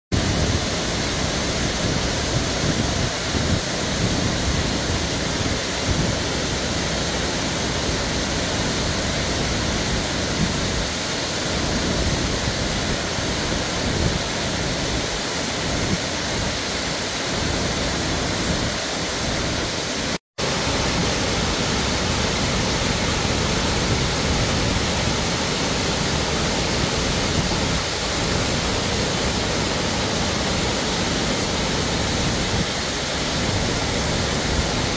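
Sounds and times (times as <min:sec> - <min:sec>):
water rushing down spillway: 0:00.2 - 0:34.9.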